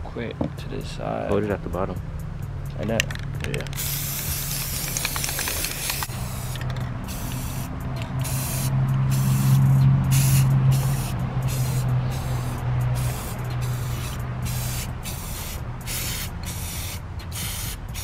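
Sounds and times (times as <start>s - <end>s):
spray paint can hissing: 3.8s - 18.0s.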